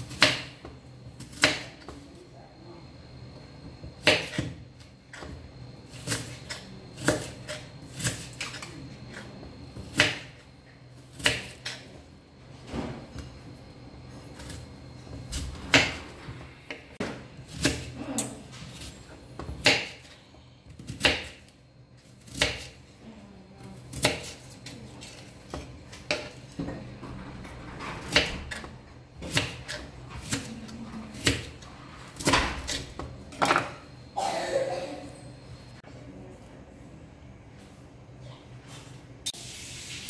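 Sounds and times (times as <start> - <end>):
knife slicing onion on cutting board: 0.0 - 1.9, 4.0 - 9.2, 9.8 - 10.4, 11.1 - 11.8, 17.0 - 21.5, 22.1 - 22.8, 23.7 - 26.4, 28.0 - 33.1.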